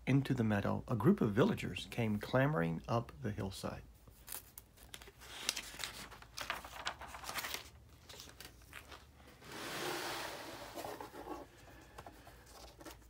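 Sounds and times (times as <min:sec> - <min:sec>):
paper pages rustling: 0:04.2 - 0:09.4, 0:10.6 - 0:13.0.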